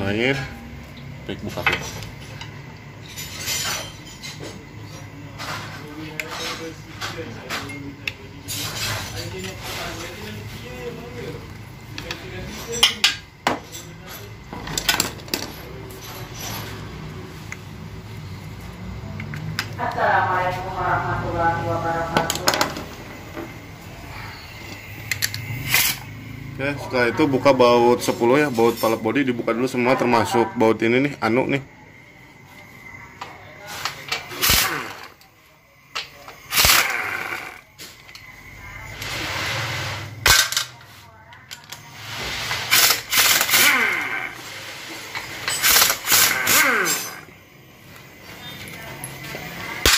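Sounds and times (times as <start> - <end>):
pneumatic impact wrench: 24.8 - 26.1, 34.2 - 35.2, 36.4 - 37.6, 42.0 - 47.4.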